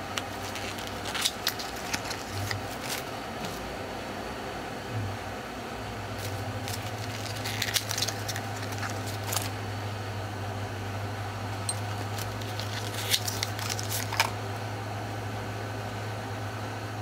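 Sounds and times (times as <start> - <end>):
steady low hum: 0.0 - 17.0
clicks and crackles: 0.1 - 3.1, 6.2 - 9.5
bottles and boxes handled on plastic: 0.2 - 3.6, 6.2 - 9.5, 11.6 - 14.4.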